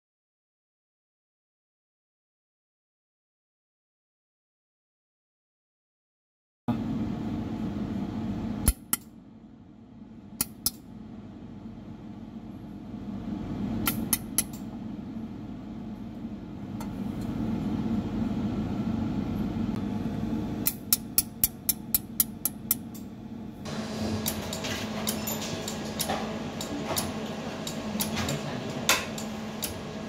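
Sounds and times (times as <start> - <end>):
laser welder snaps: 8.6 - 9.1, 13.8 - 14.6
machine humming: 10.5 - 30.0.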